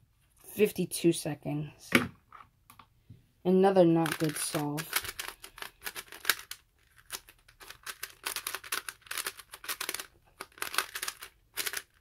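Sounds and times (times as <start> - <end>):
plastic puzzle cube clicking: 4.0 - 12.0.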